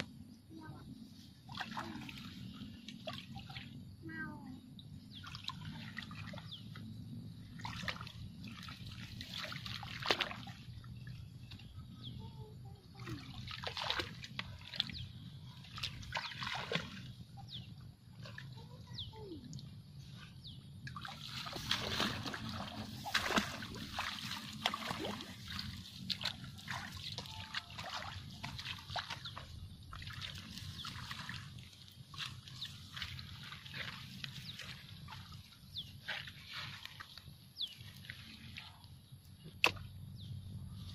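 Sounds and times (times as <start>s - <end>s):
water splashes: 0.7s - 20.2s, 20.8s - 40.0s
footsteps through wet grass: 7.6s - 11.7s, 19.9s - 38.9s.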